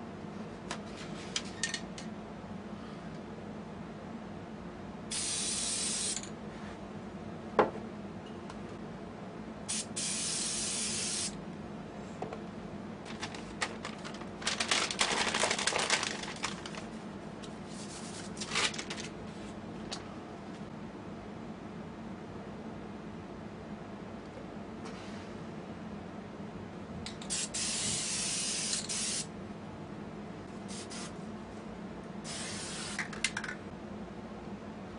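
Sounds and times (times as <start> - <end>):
spray paint can hissing: 5.1 - 6.2, 9.7 - 11.4, 27.3 - 29.3, 32.3 - 33.1.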